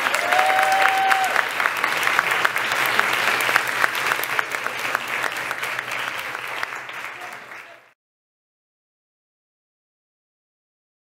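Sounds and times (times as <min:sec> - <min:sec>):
audience applauding: 0:00.0 - 0:08.0.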